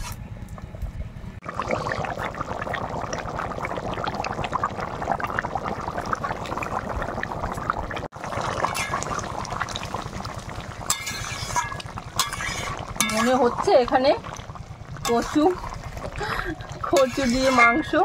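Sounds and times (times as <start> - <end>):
curry bubbling at a boil: 1.4 - 18.0.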